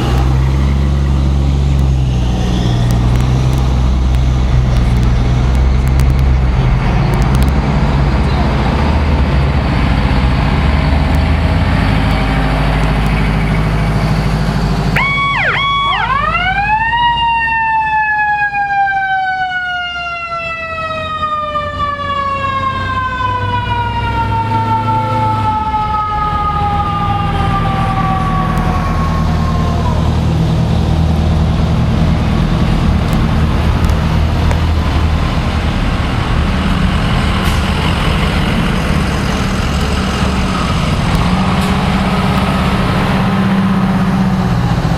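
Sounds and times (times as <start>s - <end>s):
fire truck engines rumbling: 0.0s - 44.9s
mechanical siren wailing: 14.9s - 30.2s.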